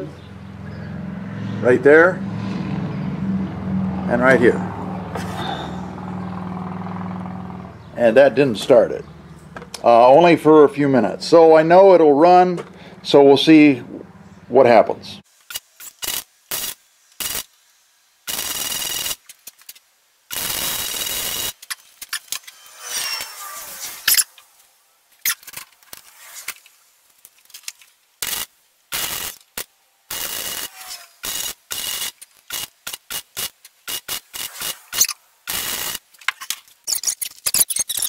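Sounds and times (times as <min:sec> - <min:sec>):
welding arc crackling: 0:15.3 - 0:17.6, 0:18.2 - 0:38.0.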